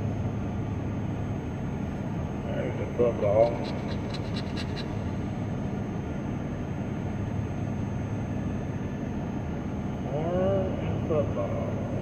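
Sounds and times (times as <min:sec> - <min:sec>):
scratching a scratch-off ticket: 0:03.3 - 0:04.9.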